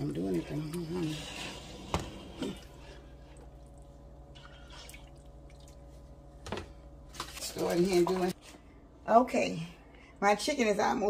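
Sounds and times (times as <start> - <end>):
pot simmering and bubbling: 0.0 - 8.4
steady low hum: 0.0 - 11.0
dripping: 1.9 - 6.3.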